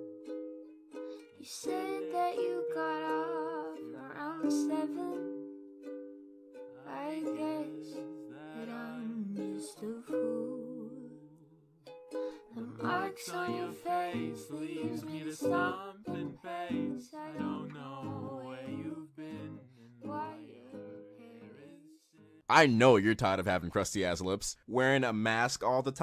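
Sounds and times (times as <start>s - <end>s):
plucked strings music: 0.0s - 21.8s
person singing: 1.0s - 5.3s, 6.8s - 11.5s, 12.2s - 22.4s.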